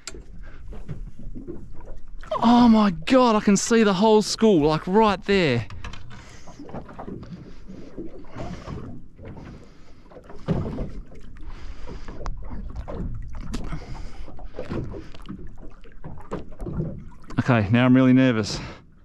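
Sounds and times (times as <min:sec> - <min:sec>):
water slapping against boat hull: 0:04.5 - 0:17.7.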